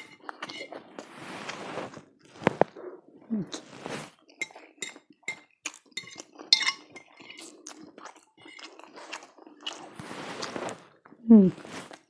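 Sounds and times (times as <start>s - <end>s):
fork clinking against a plate: 0.0s - 0.7s, 4.4s - 7.5s.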